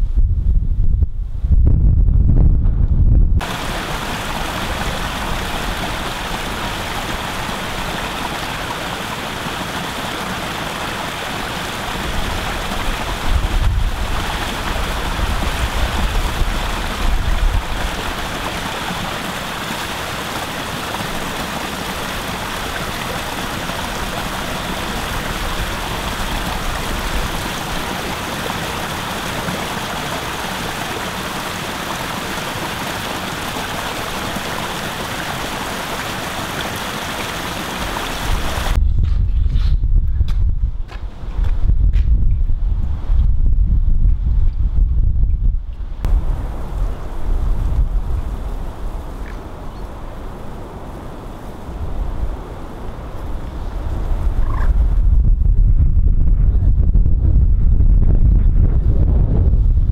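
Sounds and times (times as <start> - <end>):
wind rumbling on microphone: 0.0 - 59.9
stream rushing over stones: 3.4 - 38.8.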